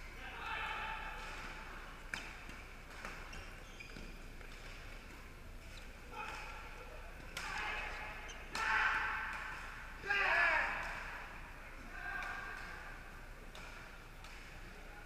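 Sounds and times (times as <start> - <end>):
murmur of voices in echoing hall: 0.0 - 3.4, 5.1 - 15.0
racquets hitting shuttlecock: 1.0 - 9.9, 12.2 - 14.8.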